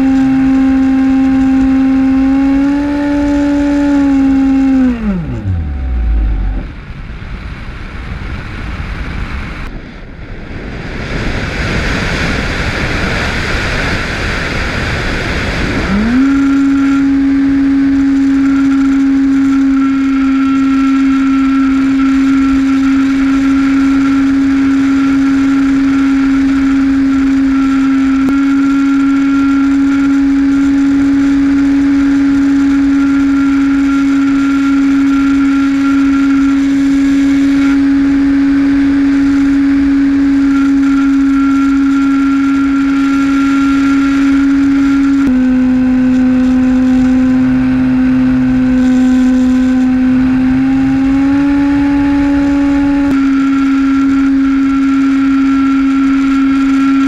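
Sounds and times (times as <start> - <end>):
electric motor and propeller whine: 0.0 - 57.0
wind rushing: 3.7 - 20.2.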